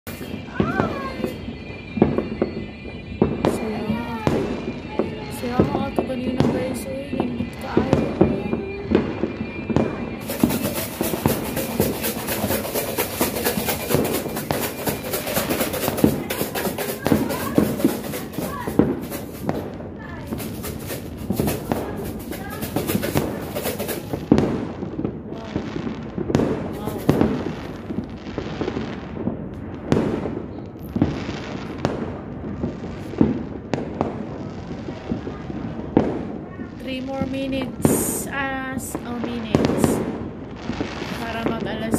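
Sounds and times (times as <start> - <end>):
fireworks popping and crackling: 0.0 - 41.9.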